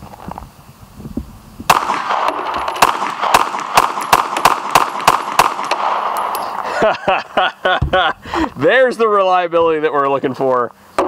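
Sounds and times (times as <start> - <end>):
pistol shots: 1.7 - 6.6.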